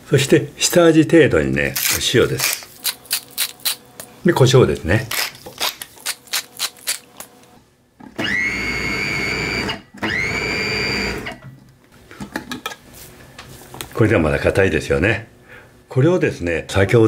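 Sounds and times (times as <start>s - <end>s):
pepper mill grinding: 1.8s - 3.9s, 4.7s - 7.3s
food processor blending: 8.2s - 11.3s.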